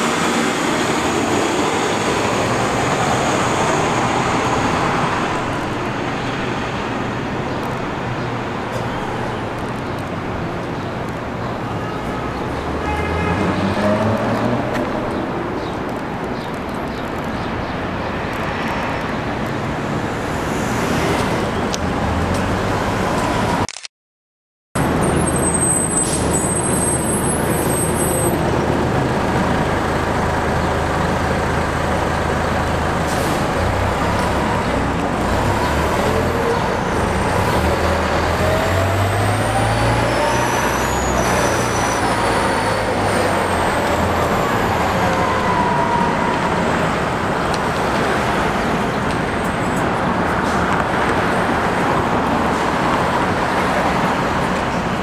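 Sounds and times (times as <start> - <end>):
diesel bus engine accelerating: 0.0 - 11.1, 24.8 - 55.0
street traffic noise: 0.0 - 23.9, 24.8 - 55.0.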